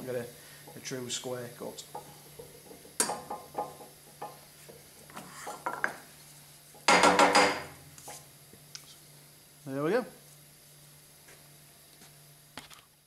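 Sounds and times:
wood and metal knocks: 1.9 - 4.4, 6.8 - 7.7.

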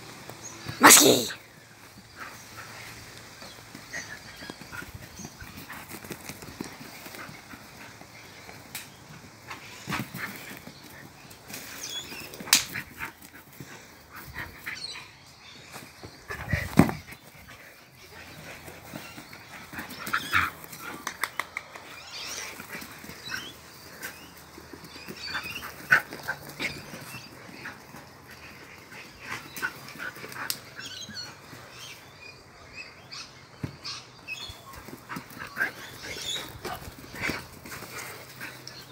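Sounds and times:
dog noises and scuffles: 33.8 - 38.9.

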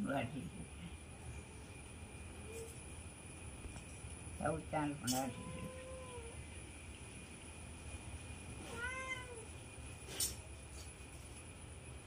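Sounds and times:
cat meowing: 5.1 - 6.4, 8.6 - 9.5.

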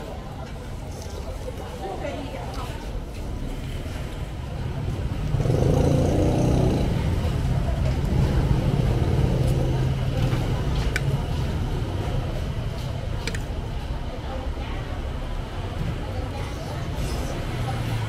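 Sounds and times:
motorcycle engine running: 5.1 - 12.1.

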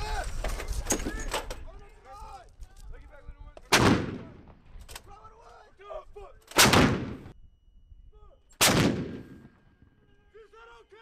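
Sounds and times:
howitzer shots: 3.7 - 4.7, 6.5 - 7.4, 8.6 - 9.6.

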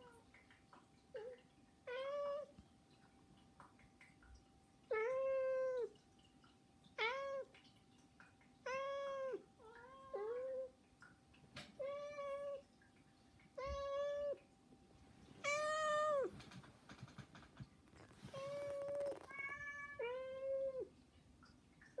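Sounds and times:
cat meowing: 18.3 - 20.8.

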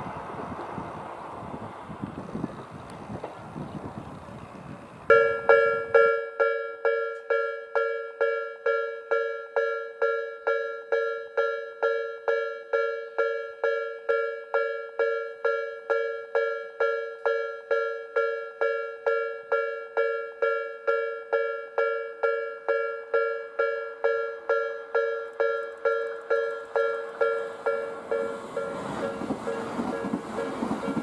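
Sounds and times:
level crossing warning bell: 5.1 - 31.0.

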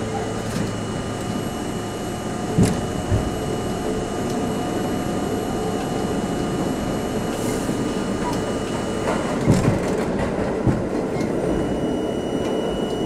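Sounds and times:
subway train rumble in tunnel: 0.0 - 13.0
wheels knocking on rail joints: 9.0 - 11.4.

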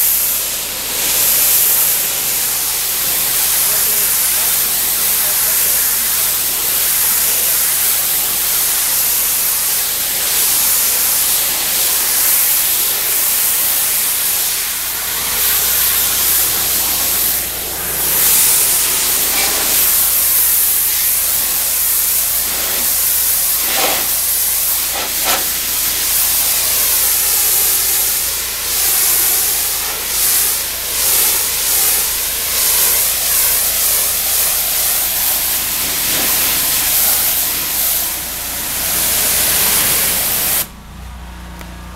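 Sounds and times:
pressure washer jet hissing: 0.0 - 40.8.

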